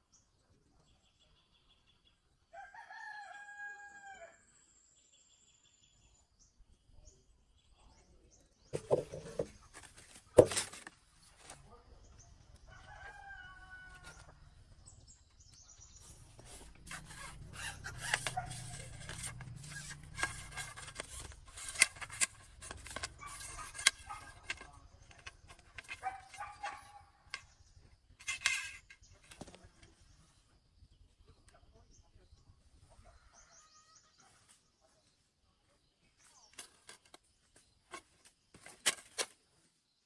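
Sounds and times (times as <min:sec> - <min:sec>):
rooster crowing: 0:02.5 - 0:04.4, 0:12.7 - 0:14.3.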